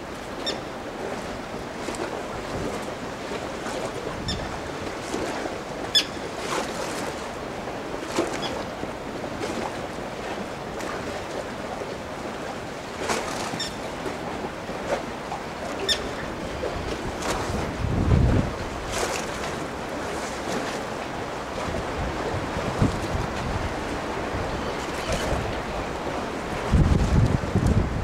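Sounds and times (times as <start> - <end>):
water noise: 0.0 - 28.0
wind: 0.0 - 28.0.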